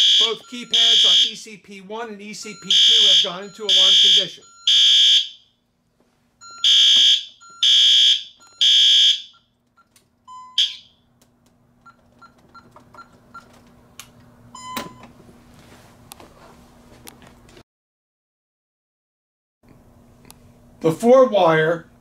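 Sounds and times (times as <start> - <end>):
fire alarm horn buzzing: 0.0 - 1.5, 2.4 - 5.6, 6.4 - 9.5, 10.3 - 11.1.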